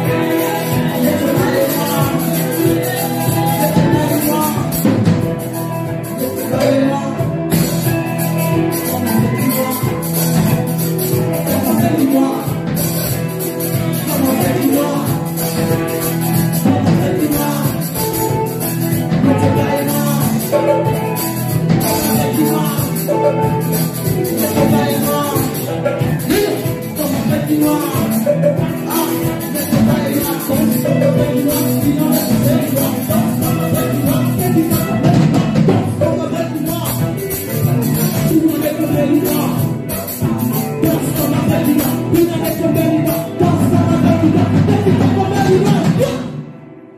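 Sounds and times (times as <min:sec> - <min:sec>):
saxophone: 0:00.0 - 0:44.4
fast drum beat: 0:00.0 - 0:46.2
person singing: 0:00.0 - 0:46.5
live band music: 0:00.0 - 0:46.9
trumpet: 0:17.0 - 0:25.6.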